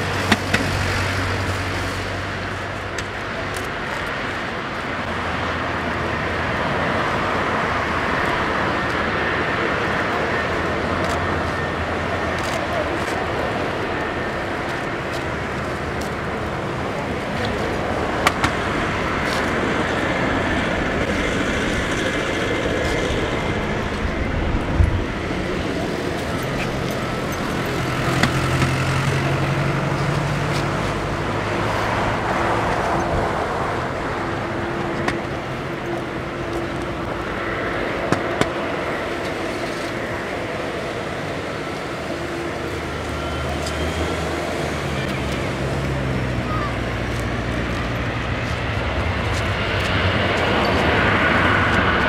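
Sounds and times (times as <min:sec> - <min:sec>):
jet engines rumbling and hissing: 0:00.0 - 0:52.0.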